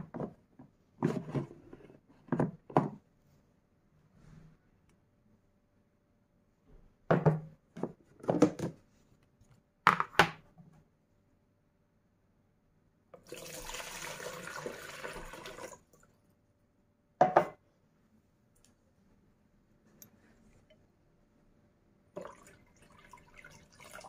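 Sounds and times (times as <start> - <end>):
water pouring into plastic dispenser: 13.2 - 16.1, 22.2 - 24.0.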